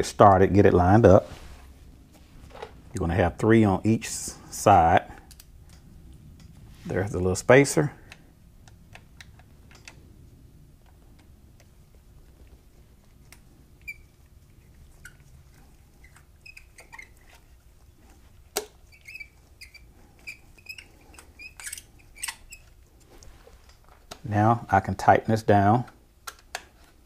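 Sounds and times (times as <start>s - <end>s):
faint squeaks: 13.8s - 23.3s.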